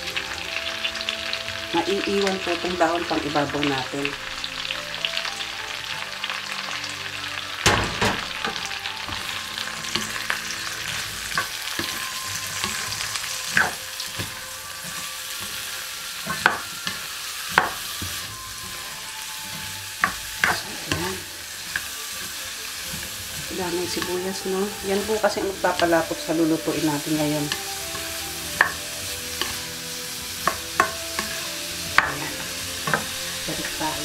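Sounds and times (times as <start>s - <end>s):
vegetables sizzling in hot oil: 0.0s - 34.0s
sharp knocks against pan: 7.6s - 8.3s.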